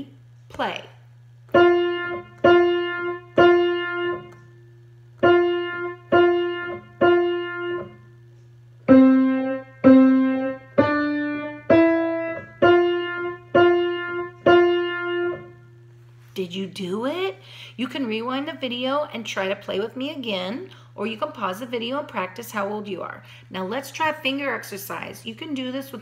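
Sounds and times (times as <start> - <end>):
faint low hum: 0.0 - 26.0
piano melody: 1.5 - 4.4, 5.2 - 8.2, 8.8 - 15.7.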